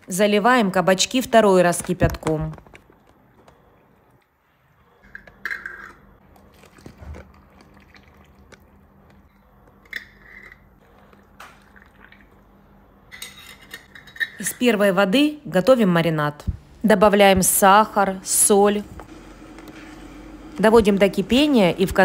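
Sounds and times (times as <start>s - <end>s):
water pouring into jars: 6.4s - 8.7s.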